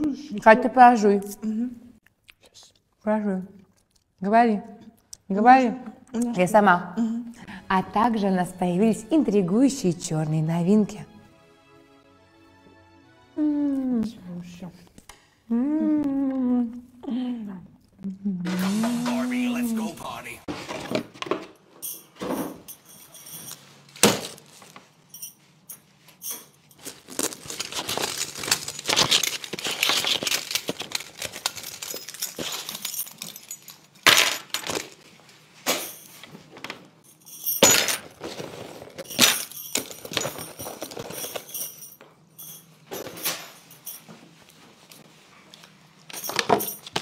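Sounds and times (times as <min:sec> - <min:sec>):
packaging rustling: 0:26.8 - 0:33.2.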